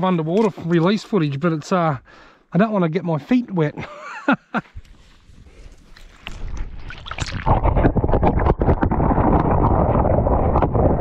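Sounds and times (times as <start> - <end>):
muffled underwater rumbling: 6.2 - 11.0.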